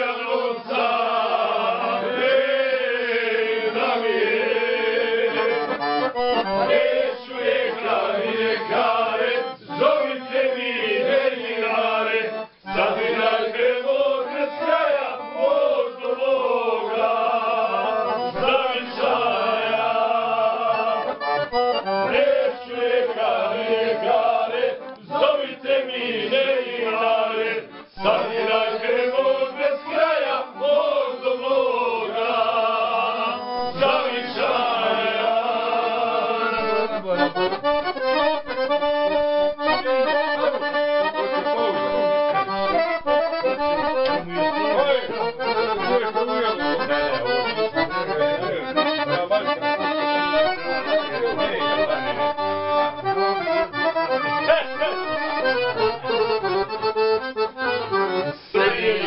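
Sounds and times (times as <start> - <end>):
accordion playing folk tune: 0.0 - 59.0.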